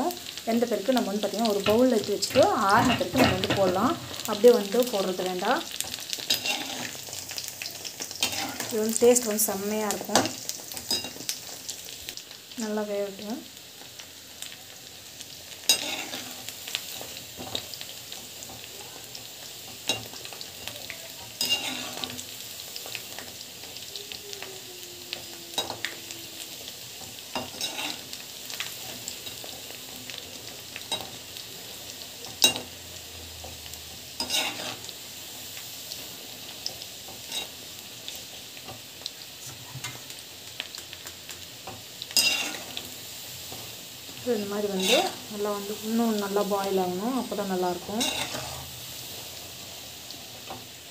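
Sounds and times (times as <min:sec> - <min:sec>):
deep-frying sizzle: 0:00.0 - 0:50.9
spoon scraping a pan: 0:01.0 - 0:05.0, 0:05.8 - 0:07.3, 0:08.0 - 0:11.4, 0:15.6 - 0:23.0, 0:27.0 - 0:29.5, 0:30.8 - 0:31.2, 0:32.2 - 0:32.8, 0:34.2 - 0:34.9, 0:36.6 - 0:37.6, 0:41.6 - 0:42.9, 0:44.6 - 0:45.8, 0:47.7 - 0:48.8.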